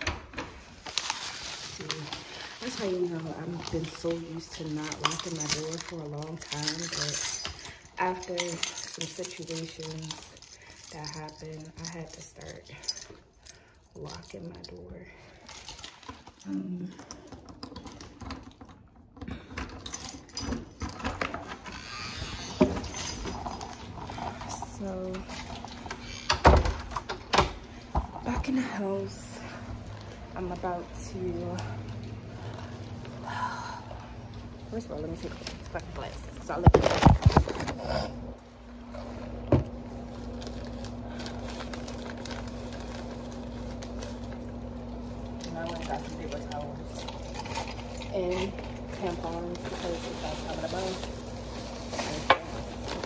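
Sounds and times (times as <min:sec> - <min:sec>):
plastic bags crinkling: 0:00.6 - 0:17.3, 0:27.7 - 0:38.0, 0:39.0 - 0:53.0
keys jangling: 0:03.7 - 0:14.3, 0:22.6 - 0:24.6
irregular clicks and rattles: 0:15.4 - 0:28.5.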